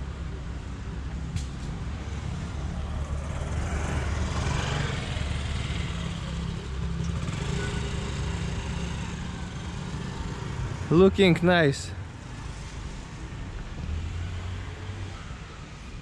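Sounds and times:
scooter engine passing by: 2.6 - 10.9.

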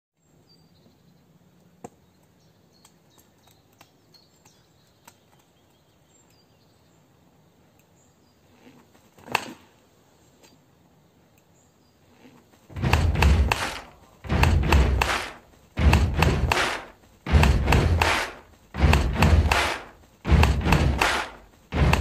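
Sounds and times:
faint clicks: 1.8 - 6.5, 11.3 - 11.6
unicycle thud on asphalt: 12.7 - 22.0.

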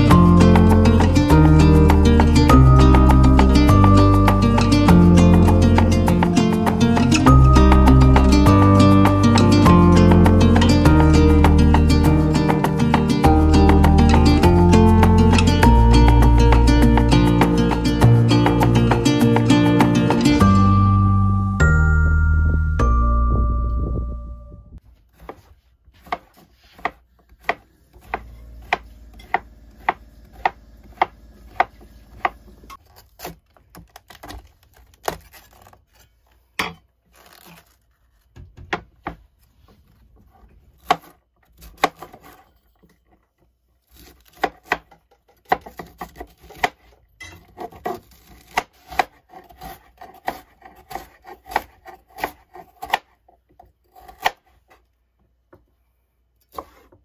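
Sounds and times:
knife chopping on wooden board: 25.2 - 32.5, 44.0 - 53.2.

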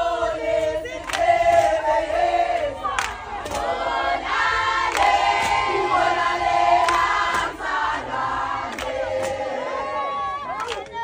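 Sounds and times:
choir singing: 0.0 - 10.5.

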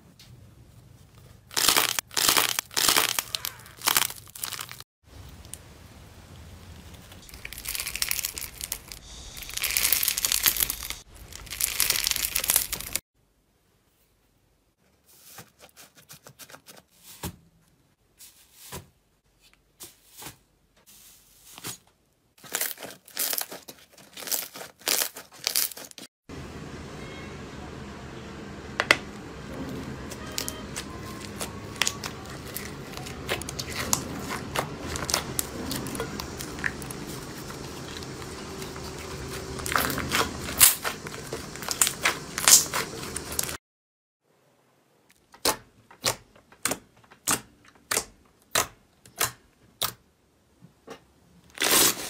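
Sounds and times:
slime crackling and crinkling: 1.2 - 5.7, 6.4 - 13.0, 22.4 - 26.1, 30.1 - 43.6.

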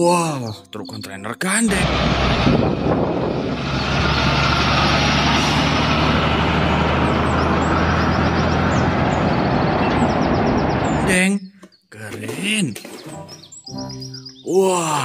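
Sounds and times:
tyre and road noise: 1.7 - 11.1
diesel engine drone: 1.7 - 11.2.

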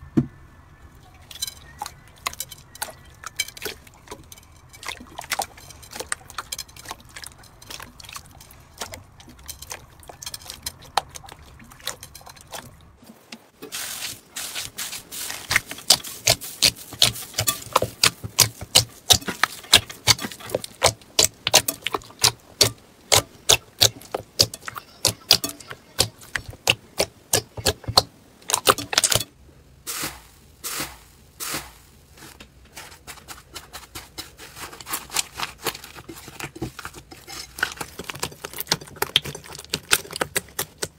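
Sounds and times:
slime squishing with wet pops: 15.3 - 29.3, 34.6 - 40.9.

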